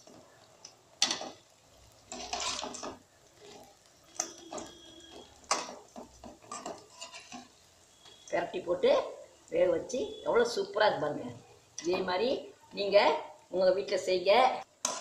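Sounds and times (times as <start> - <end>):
oil sizzling: 0.0 - 15.0
metal ladle clinking and scraping pan: 2.1 - 7.6.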